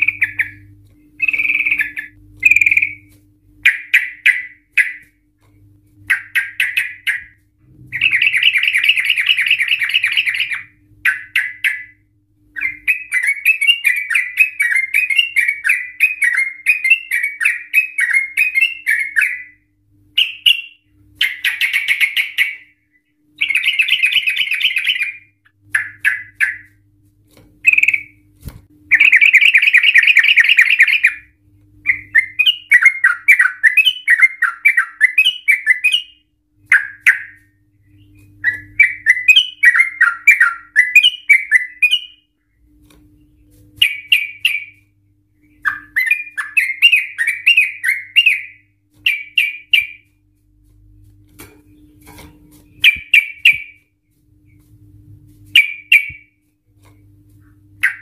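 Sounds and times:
bulbul singing: 0.0s - 5.2s, 6.0s - 26.8s, 27.6s - 28.3s, 28.9s - 50.2s, 50.9s - 54.7s, 55.5s - 56.4s, 57.8s - 58.0s.

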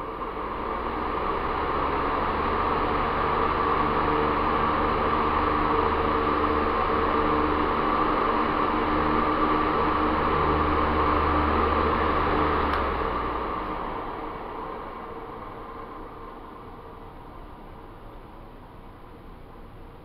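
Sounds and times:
fan air rushing: 0.0s - 20.0s
low motor hum: 0.0s - 20.0s
fan switch click: 12.6s - 13.0s.

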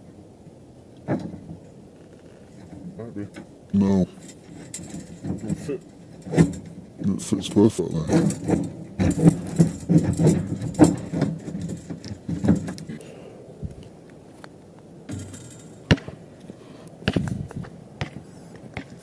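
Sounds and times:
basketball net rattling: 8.1s - 13.0s, 15.1s - 16.3s.

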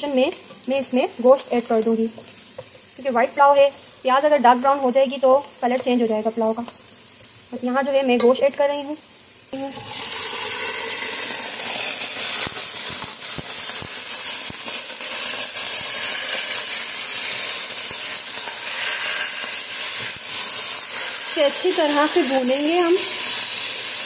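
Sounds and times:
meat sizzling in hot oil: 0.0s - 24.0s.

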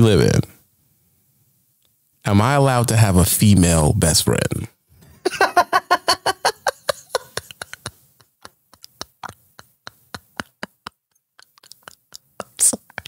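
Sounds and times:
woman laughing: 5.2s - 11.2s
stifled breathy laughter: 5.3s - 11.1s.

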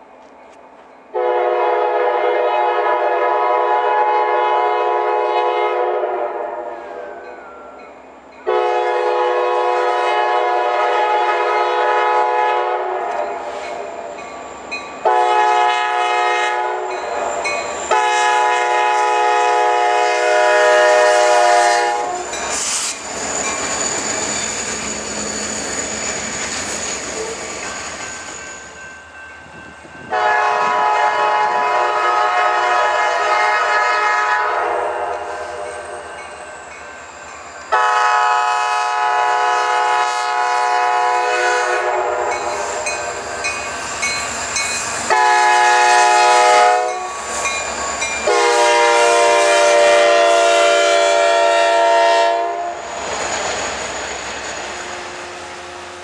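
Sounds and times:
train air horn: 1.1s - 7.2s, 8.5s - 13.6s, 15.0s - 23.0s, 30.1s - 36.1s, 37.7s - 43.0s, 45.0s - 47.4s, 48.2s - 52.8s
locomotive passing rush: 6.6s - 56.0s.

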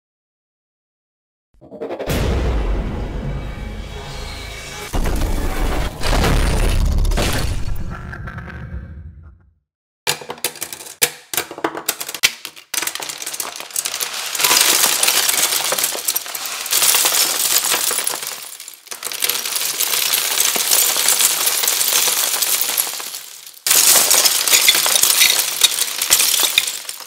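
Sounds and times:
plastic pieces clattering: 10.1s - 27.0s.

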